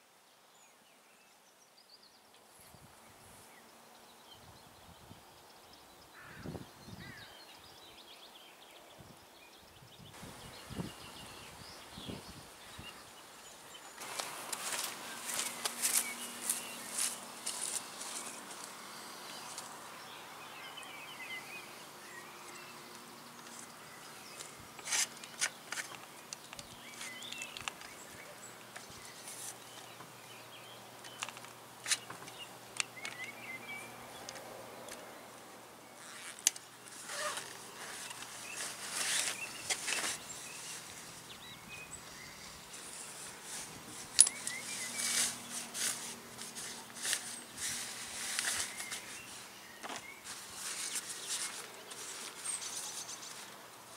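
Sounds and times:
faint outdoor hiss: 0.0 - 53.9
small birds chirping: 0.5 - 53.9
gear clicking and rustling: 14.0 - 18.7, 36.0 - 40.9, 42.7 - 53.5.

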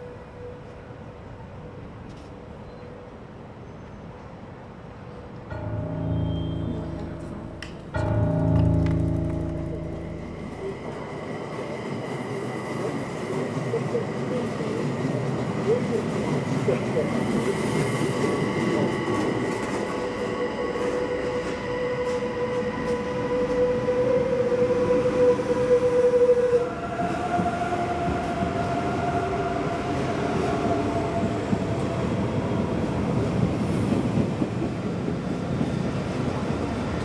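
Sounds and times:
train cars rumbling: 5.3 - 23.8
electric train traction whine: 5.5 - 15.4.

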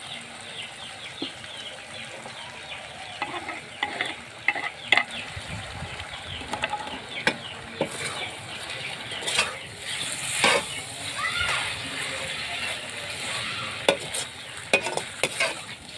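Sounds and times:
potatoes sizzling in oil: 0.0 - 15.9
skimmer scraping and clanking on pan: 3.1 - 5.3, 6.4 - 15.8.

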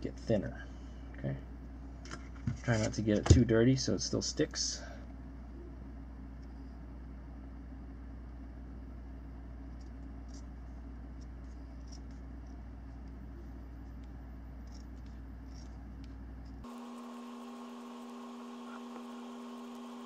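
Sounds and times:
steady low hum: 0.0 - 20.0
tape scratching and rustling: 13.8 - 16.6.

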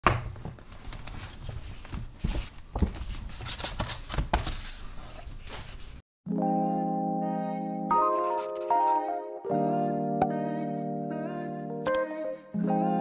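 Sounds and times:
soft keyboard music: 6.2 - 13.0.

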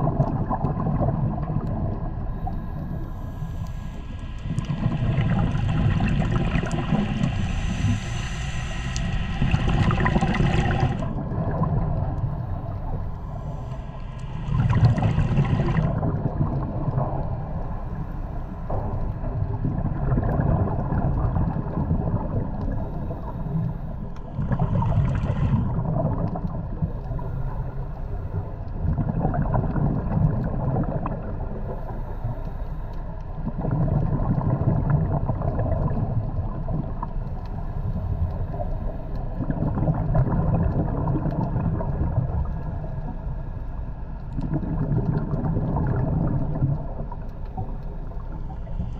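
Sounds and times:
underwater bubbles gurgling: 0.0 - 48.9
regulator inhalation hiss: 6.8 - 11.0.

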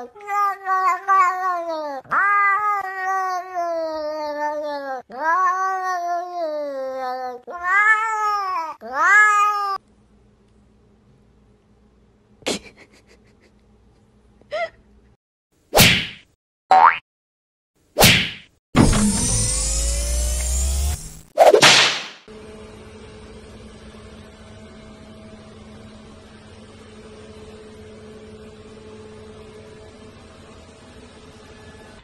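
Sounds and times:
cat meowing: 0.0 - 9.8
short sharp sounds: 21.4 - 22.3.

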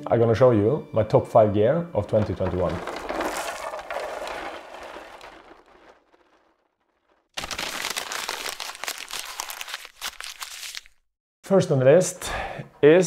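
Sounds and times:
paper crinkling and rustling: 2.0 - 6.7, 7.4 - 11.0.

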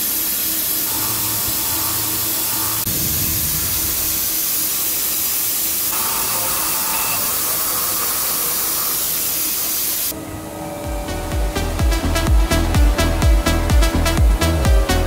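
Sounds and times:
cnc machine milling hiss: 0.0 - 15.0
faint steady whine: 0.0 - 15.0.

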